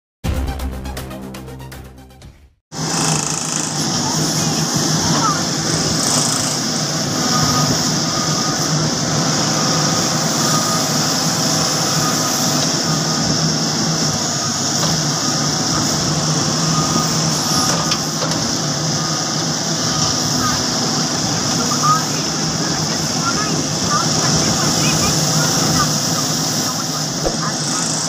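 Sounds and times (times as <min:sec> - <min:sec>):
diesel engine running: 0:02.7 - 0:28.0
backhoe digging soil: 0:02.8 - 0:08.5.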